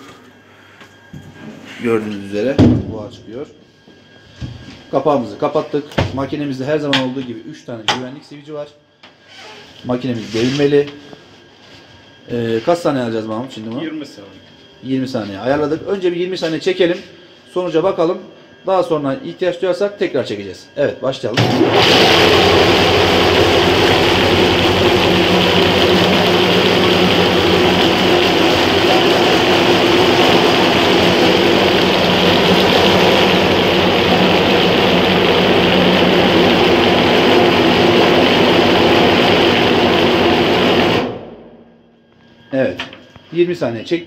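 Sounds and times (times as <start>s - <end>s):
food processor motor grinding: 21.4s - 41.1s.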